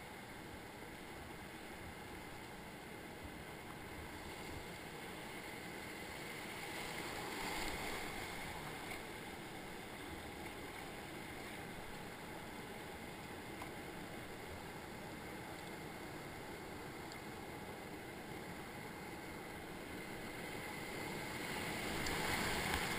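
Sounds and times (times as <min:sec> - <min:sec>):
whitewater rushing: 0:20.8 - 0:22.9.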